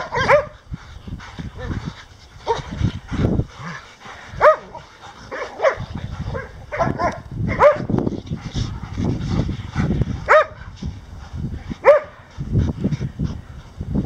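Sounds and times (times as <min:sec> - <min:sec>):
dogs barking in play: 0:00.0 - 0:00.7, 0:01.3 - 0:10.8, 0:11.7 - 0:12.4.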